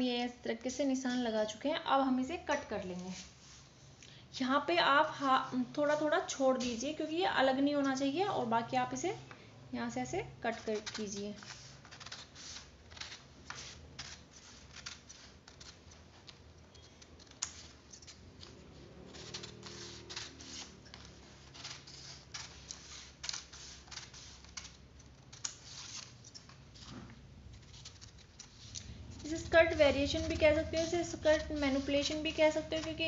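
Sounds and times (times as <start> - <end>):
scissors snipping paper: 10.1 - 33.0.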